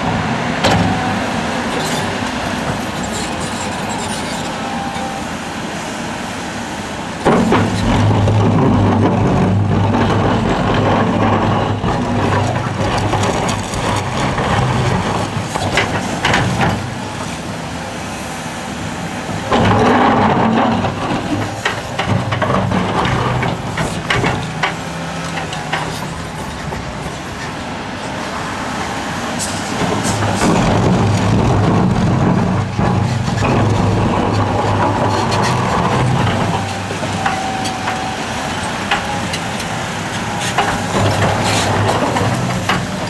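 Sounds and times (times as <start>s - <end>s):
excavator diesel engine under load: 0.0s - 43.0s.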